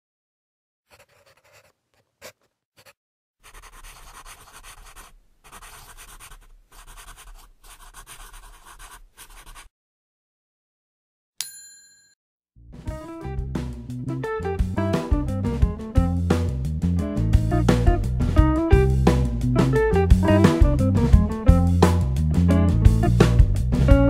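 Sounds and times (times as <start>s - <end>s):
pencil scratching on paper: 0.9s - 9.7s.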